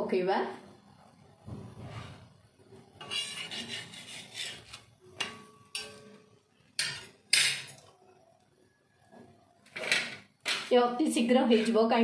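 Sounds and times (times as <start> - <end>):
spatula rasping on hot pan: 3.0 - 6.1, 11.3 - 12.0.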